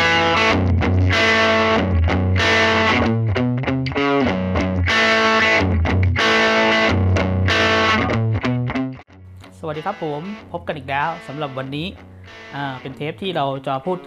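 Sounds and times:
distorted electric guitar riff: 0:00.0 - 0:14.0.

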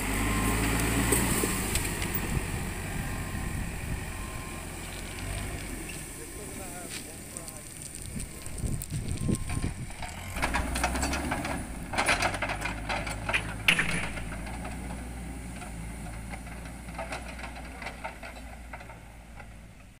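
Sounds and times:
diesel engine running: 0:00.0 - 0:20.0
clattering and metal rattles: 0:08.0 - 0:20.0
sharp metal clank: 0:13.6 - 0:14.4.

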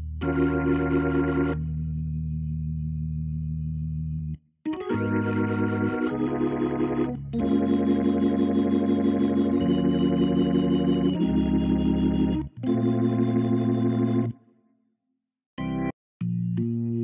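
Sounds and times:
organ playing sustained chords: 0:00.0 - 0:02.2, 0:04.7 - 0:14.4.

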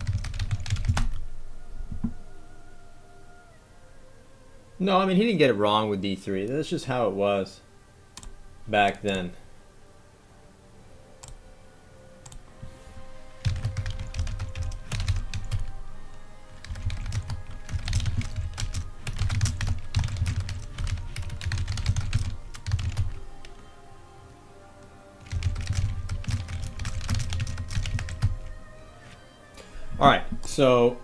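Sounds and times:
keyboard typing: 0:00.0 - 0:01.2, 0:11.2 - 0:11.4, 0:13.4 - 0:15.7, 0:16.6 - 0:23.6, 0:25.2 - 0:28.6
faint background music: 0:00.0 - 0:31.0.

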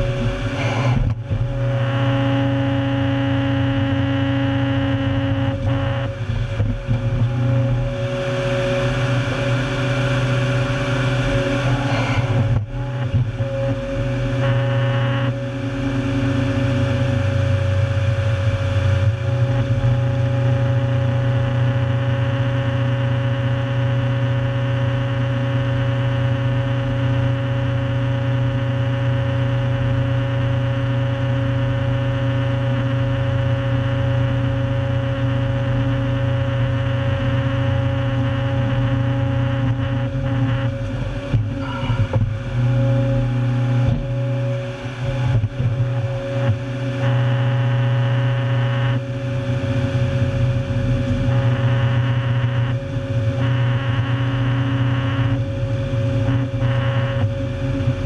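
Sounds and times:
heavy machine engine humming: 0:00.0 - 0:58.0.

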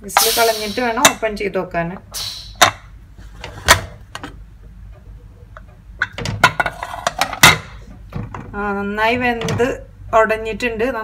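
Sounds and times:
steam hissing: 0:00.2 - 0:01.1, 0:02.1 - 0:02.7
metal lid clicks and knocks: 0:06.0 - 0:07.7.

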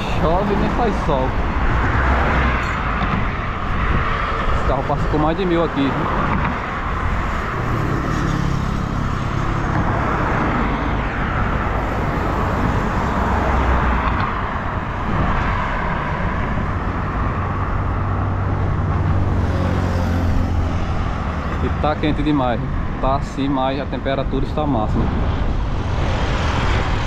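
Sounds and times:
cars passing: 0:00.0 - 0:27.0.

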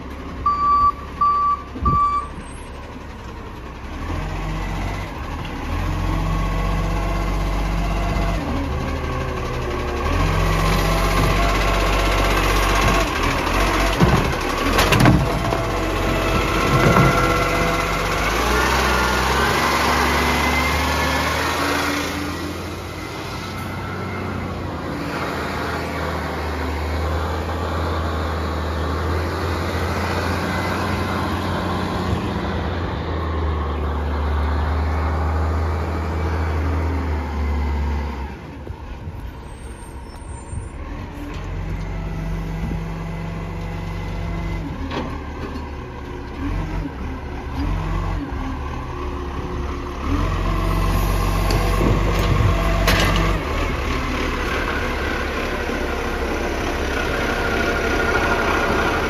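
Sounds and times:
garbage truck engine drone: 0:00.0 - 0:59.0.

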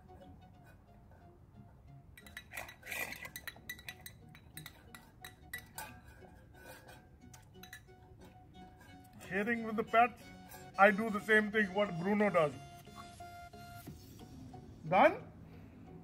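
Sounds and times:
spoon clinking on metal bowls: 0:02.2 - 0:09.3.

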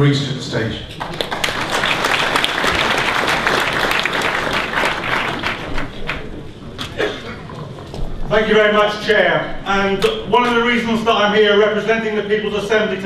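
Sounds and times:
audience applauding: 0:00.9 - 0:06.9.

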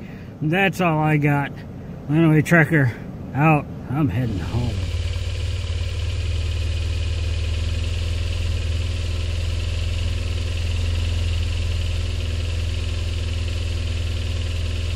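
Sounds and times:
vehicle engine idling: 0:03.0 - 0:14.9.

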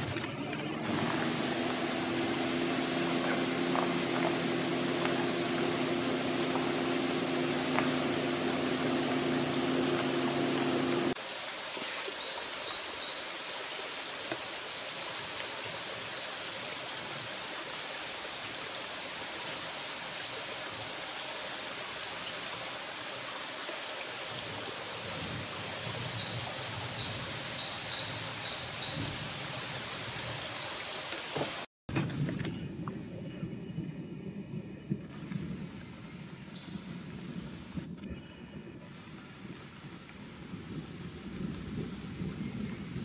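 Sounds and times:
low steady hum: 0:00.0 - 0:11.2
rainforest ambience hiss: 0:00.0 - 0:31.7, 0:32.4 - 0:43.0.

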